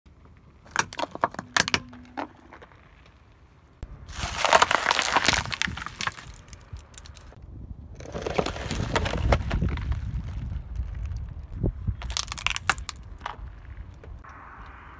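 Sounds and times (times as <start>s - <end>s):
low tyre rumble: 0.1s - 14.9s
tyre crushing brittle objects: 0.6s - 2.8s, 4.1s - 7.4s, 12.0s - 13.4s.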